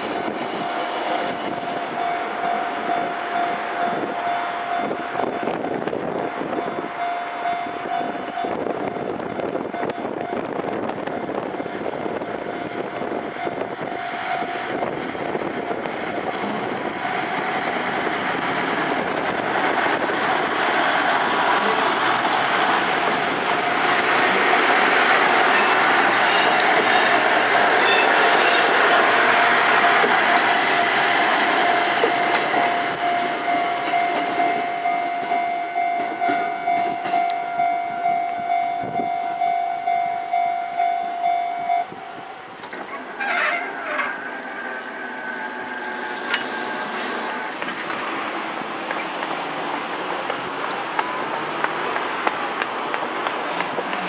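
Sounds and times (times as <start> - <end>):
diesel train rolling past: 0.0 - 54.0
level crossing alarm ringing: 30.7 - 42.3.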